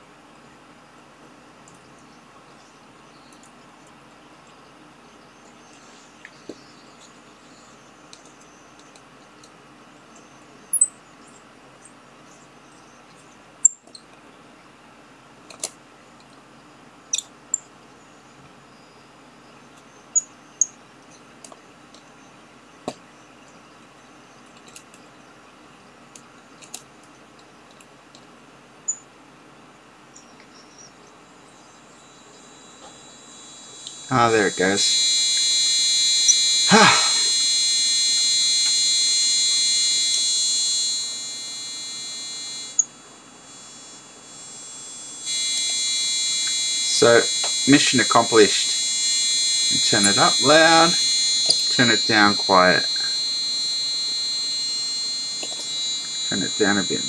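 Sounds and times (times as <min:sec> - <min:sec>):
piezo buzzer high tone: 0:31.8 - 0:57.0.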